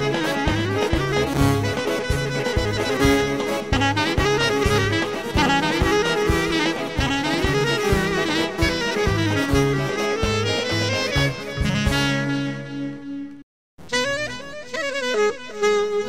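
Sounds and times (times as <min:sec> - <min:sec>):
drum beat: 0:00.0 - 0:12.1
bass notes: 0:00.0 - 0:13.4
clarinet melody: 0:00.0 - 0:16.0.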